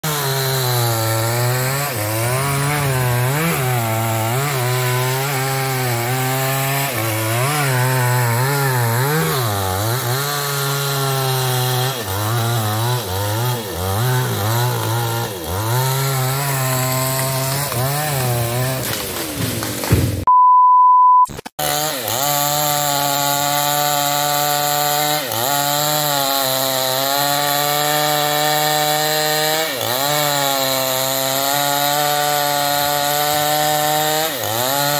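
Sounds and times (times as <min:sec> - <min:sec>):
chainsaw cutting wood: 0:00.0 - 0:20.3, 0:21.3 - 0:34.9
steady beep: 0:20.3 - 0:21.3.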